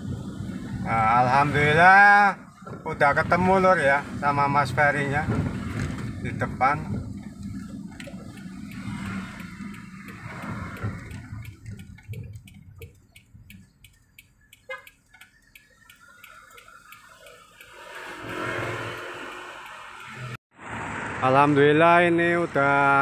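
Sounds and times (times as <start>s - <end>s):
car engine and road rumble: 0.0s - 23.0s
light regular ticking: 6.1s - 20.4s.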